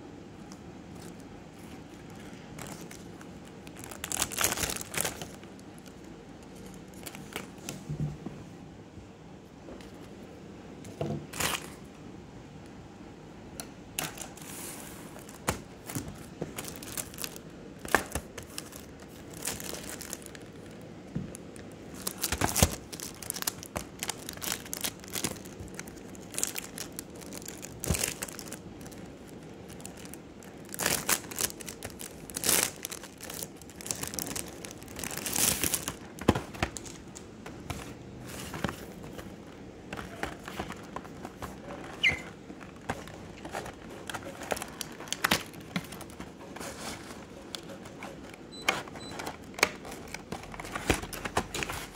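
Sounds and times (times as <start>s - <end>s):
plastic wrap crinkling and tearing: 0.5s - 7.7s, 11.3s - 11.8s, 14.0s - 37.2s, 40.0s - 48.2s.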